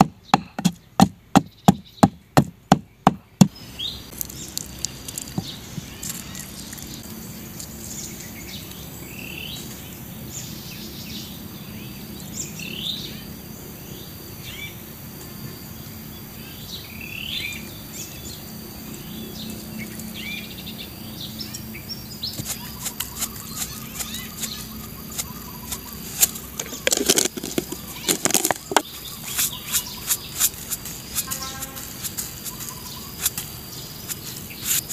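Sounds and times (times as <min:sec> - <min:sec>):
birds chirping: 0:00.0 - 0:14.8, 0:15.5 - 0:34.9
high insect buzz: 0:12.4 - 0:34.9.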